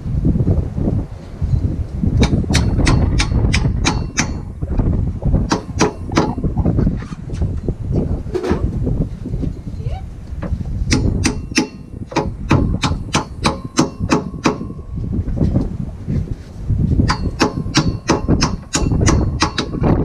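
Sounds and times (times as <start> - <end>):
wind rumble on microphone: 0.0 - 20.0
hammer striking steel: 2.2 - 4.5, 5.5 - 6.5, 10.9 - 15.0, 17.0 - 19.8.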